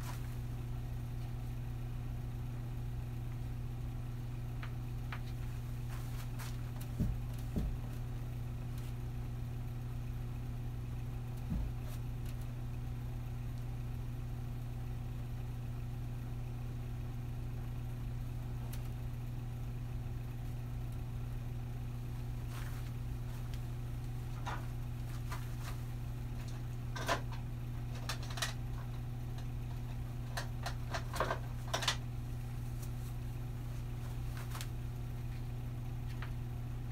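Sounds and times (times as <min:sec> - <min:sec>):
steady low hum: 0:00.0 - 0:36.9
short thumps: 0:06.9 - 0:08.0, 0:11.4 - 0:12.0.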